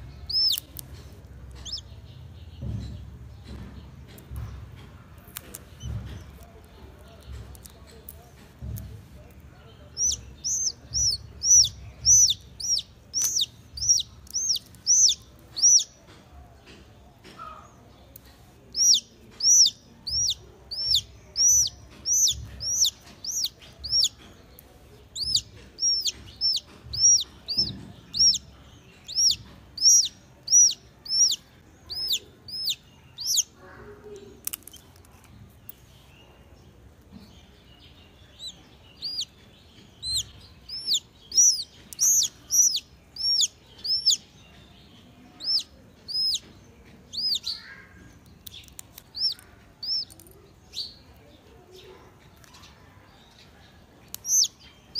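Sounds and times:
chick peeping: 0:00.0 - 0:04.6, 0:05.2 - 0:36.4, 0:37.0 - 0:54.9.

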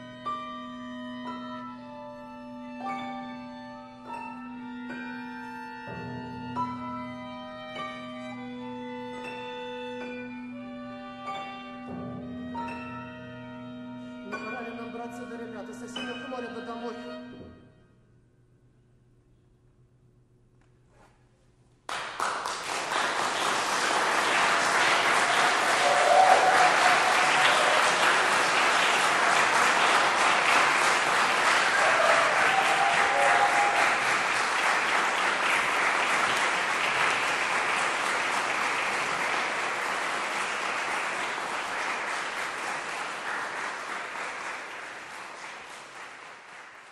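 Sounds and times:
audience applauding: 0:21.9 - 0:46.9.

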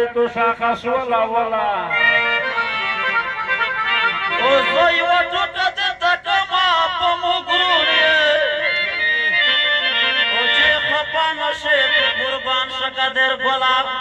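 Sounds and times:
folk melody on reed instrument: 0:02.0 - 0:05.0, 0:08.8 - 0:10.9.

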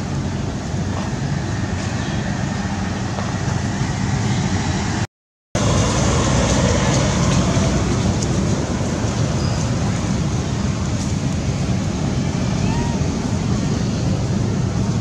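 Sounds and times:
loud rumbling noise: 0:00.0 - 0:15.0.

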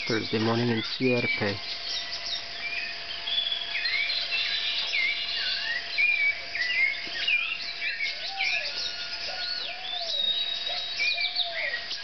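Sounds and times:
low looping whistled call: 0:00.0 - 0:12.0
tropical birds singing: 0:00.0 - 0:12.0.

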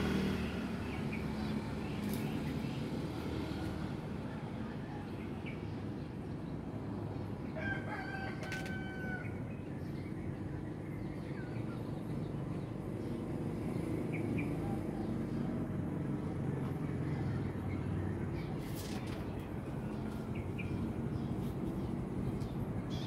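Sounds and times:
rooster crowing: 0:07.6 - 0:09.4.

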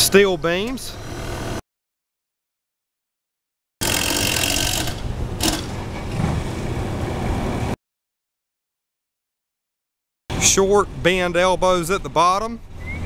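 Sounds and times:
outdoor rushing noise: 0:04.9 - 0:07.8.

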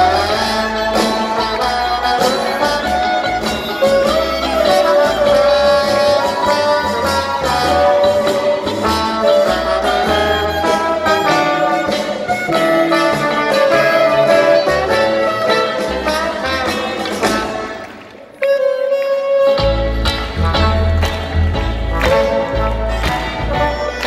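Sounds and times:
banjo: 0:00.0 - 0:17.8
upright bass: 0:00.0 - 0:17.8, 0:19.5 - 0:24.0
trumpets and trombone: 0:00.0 - 0:24.0.

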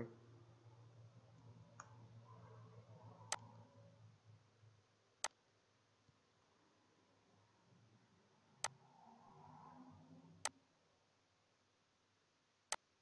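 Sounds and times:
faint low hum: 0:00.0 - 0:13.0
computer mouse clicks: 0:03.2 - 0:03.6.

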